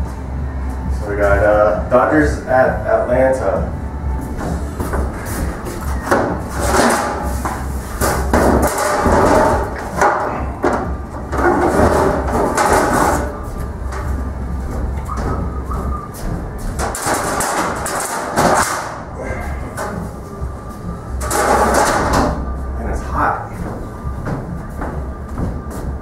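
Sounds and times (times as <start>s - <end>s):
metal plates clanking and scraping: 4.3s - 22.6s.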